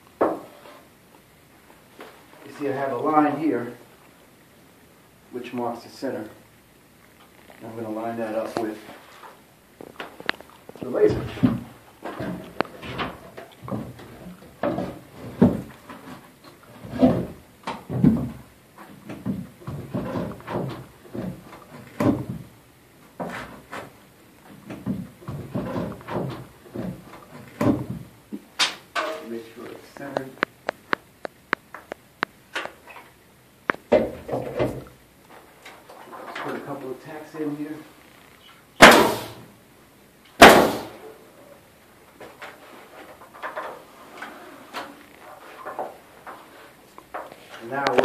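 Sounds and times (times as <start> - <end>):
wooden knocks and scrapes: 8.4 - 22.5, 23.2 - 28.1
nail gun firing: 38.8 - 39.4, 40.4 - 41.0
short hiss of exhaust air: 39.0 - 39.5.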